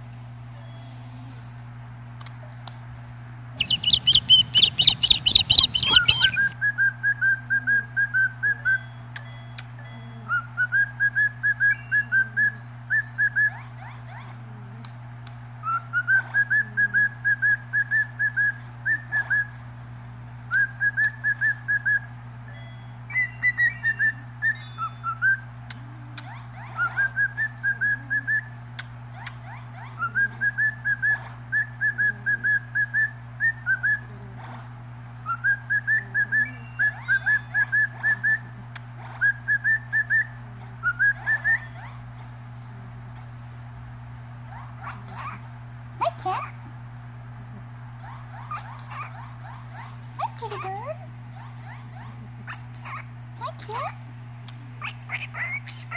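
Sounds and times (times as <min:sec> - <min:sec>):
cockatiel whistling: 0:03.6 - 0:07.2, 0:39.2 - 0:41.8.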